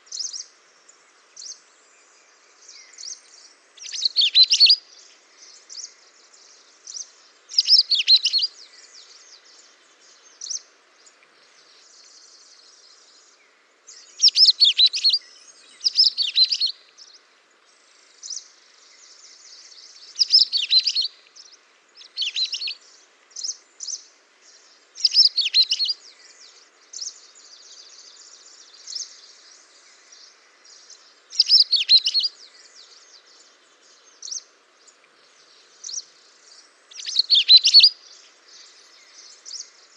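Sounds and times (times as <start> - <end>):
songbirds warbling: 0.0 - 39.9
bird chirps and twitters: 31.4 - 32.3, 36.9 - 37.9.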